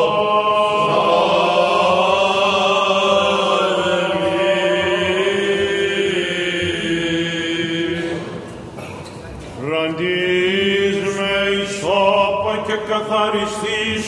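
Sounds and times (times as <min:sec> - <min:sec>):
steady low vocal drone: 0:00.0 - 0:08.6.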